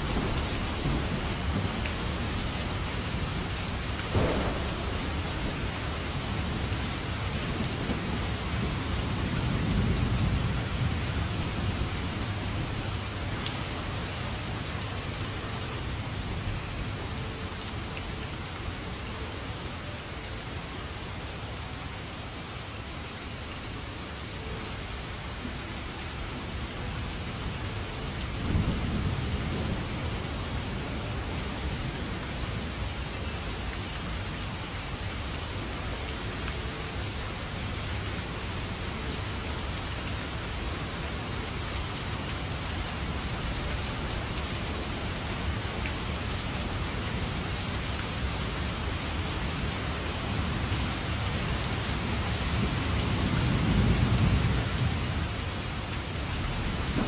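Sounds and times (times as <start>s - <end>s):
heavy rain falling: 0.0s - 57.0s
rolls of thunder: 4.1s - 5.6s.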